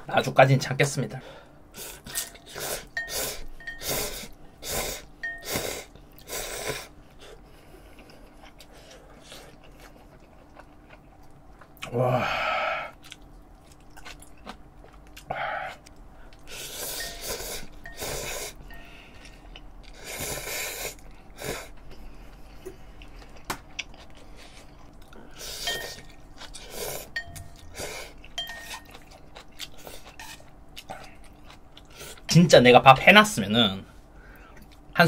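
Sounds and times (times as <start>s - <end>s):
chewing: 6.1s - 11.9s, 12.9s - 32.3s.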